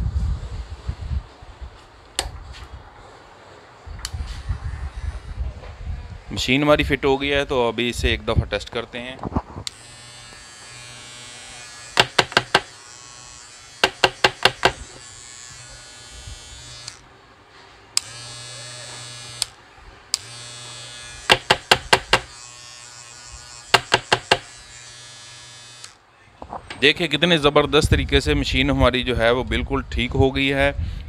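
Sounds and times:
hair trimmer buzzing: 9.7s - 17.1s, 18.0s - 26.0s.

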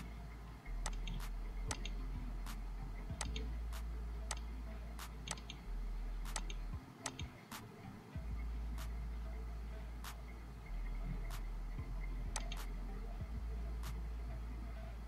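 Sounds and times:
low electrical hum: 0.0s - 15.0s
computer mouse clicking: 0.8s - 2.6s, 3.2s - 3.4s, 4.3s - 5.6s, 6.3s - 7.7s, 12.3s - 12.7s.

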